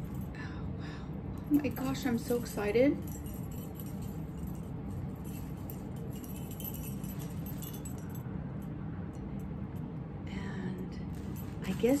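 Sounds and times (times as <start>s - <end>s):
small metal bells jingling: 1.5s - 9.5s, 11.1s - 12.0s.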